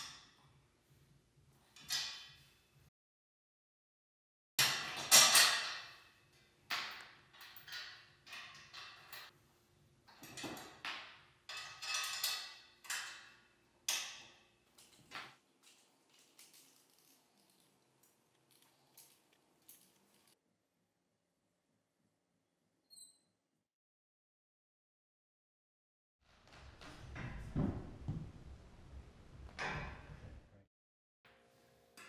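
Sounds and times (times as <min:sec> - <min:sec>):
metal tubes clinking and knocking: 0:04.6 - 0:09.3, 0:10.1 - 0:20.4.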